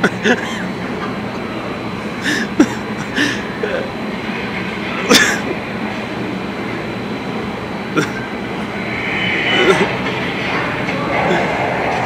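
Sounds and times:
blower rushing air: 2.8s - 12.0s
loud sharp noise: 8.0s - 12.0s.

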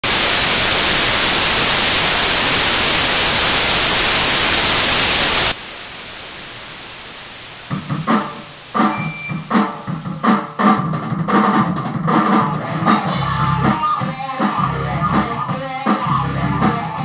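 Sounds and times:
white noise static hiss: 0.0s - 11.0s
quiet hiss: 0.1s - 10.8s
live rock band hits: 7.7s - 17.0s.

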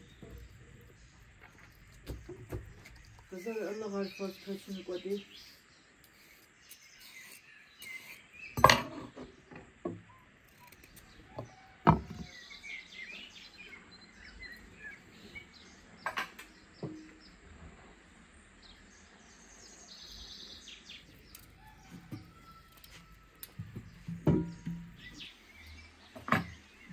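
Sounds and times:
songbirds chirping: 0.0s - 26.9s
kitchen knocks and clicks: 23.7s - 24.9s.

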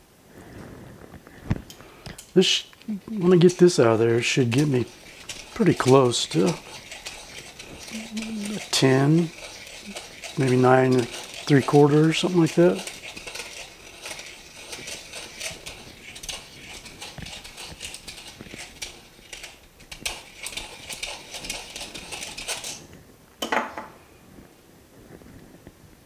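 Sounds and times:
deburring tool scraping metal: 3.1s - 22.8s.

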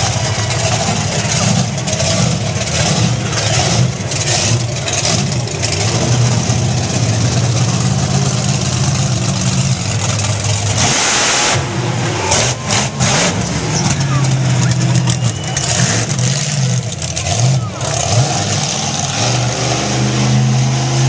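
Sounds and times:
truck crushing cars: 0.0s - 21.0s
truck engine revving: 0.0s - 21.0s.

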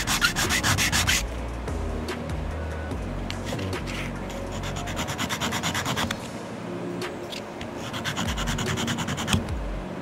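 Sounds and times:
plastic part scraping on sanding block: 0.0s - 1.2s.

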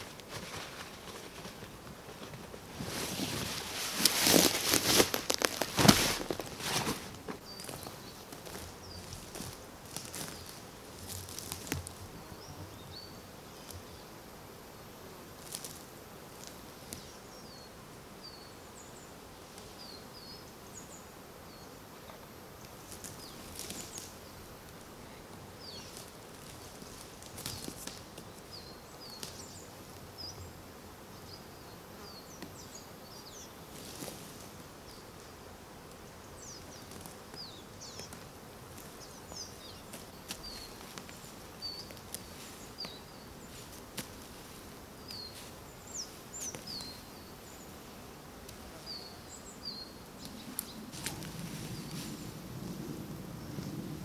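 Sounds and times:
insects humming: 0.0s - 54.0s.

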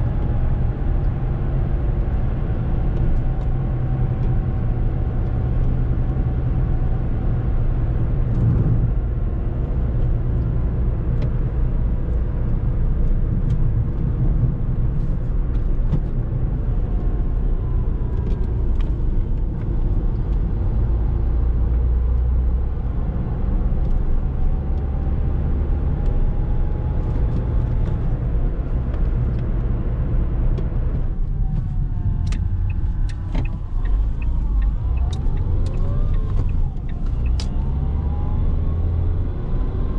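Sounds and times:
road and tyre rumble: 0.0s - 39.9s
light ticks: 31.6s - 37.6s.

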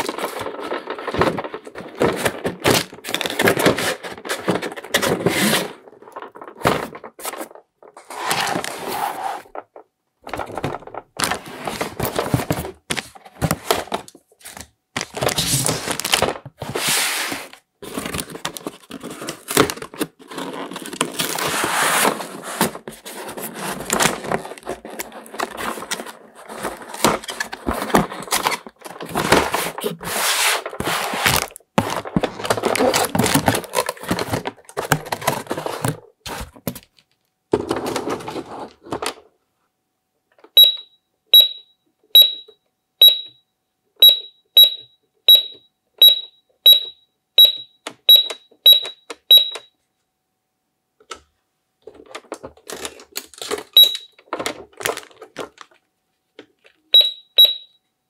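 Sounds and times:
cardboard packaging rustling: 0.0s - 39.2s
toy cash register beeping: 40.6s - 43.4s, 44.0s - 49.7s, 53.6s - 54.3s, 57.0s - 57.8s.

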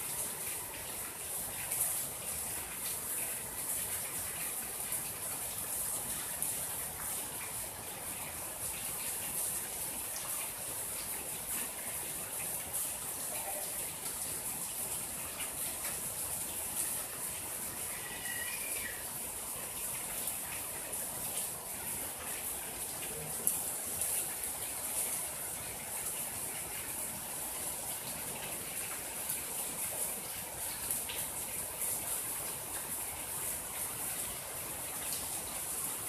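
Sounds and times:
steady rain hiss: 0.0s - 36.0s.

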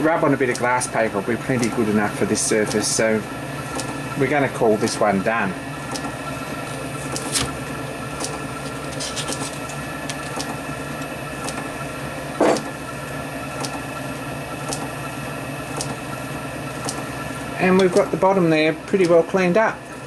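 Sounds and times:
machine hum: 0.0s - 20.0s
hex key undoing screw: 8.1s - 10.6s.

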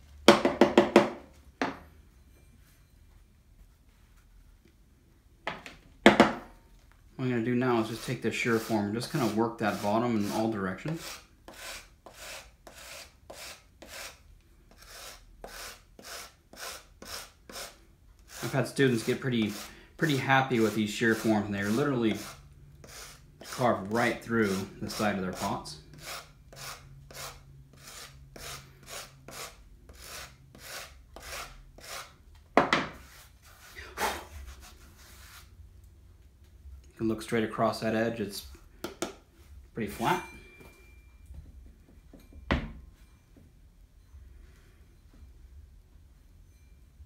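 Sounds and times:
rasp scraping clay: 7.8s - 32.2s, 33.0s - 35.5s.

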